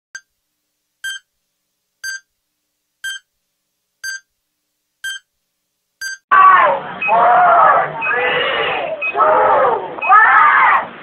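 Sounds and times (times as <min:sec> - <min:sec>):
short electronic beeps: 0:01.0 - 0:01.3, 0:02.0 - 0:02.3, 0:03.0 - 0:03.3, 0:04.0 - 0:04.3, 0:05.0 - 0:05.3, 0:06.0 - 0:06.2.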